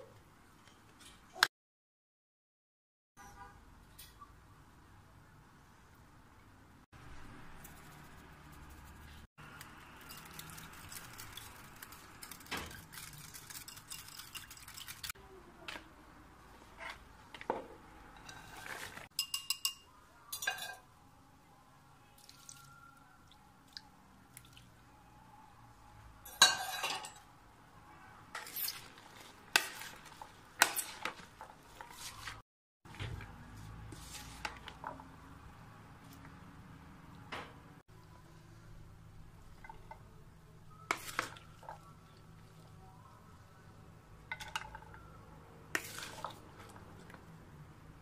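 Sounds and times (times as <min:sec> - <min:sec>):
utensils clinking against dishes: 0:18.2 - 0:20.8, 0:26.3 - 0:27.2.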